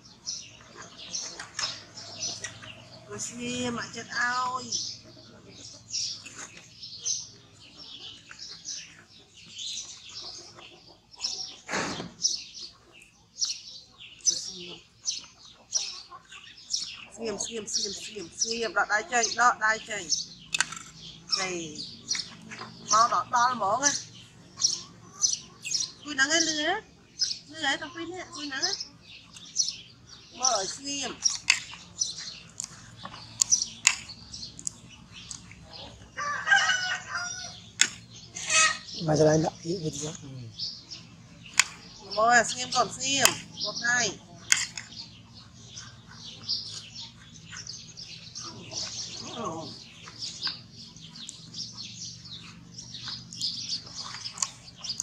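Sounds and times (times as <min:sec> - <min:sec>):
high-pitched chirping and squeaking: 0:13.4 - 0:55.0
sharp clicks: 0:20.5 - 0:21.0, 0:41.5 - 0:41.8, 0:44.5 - 0:45.0.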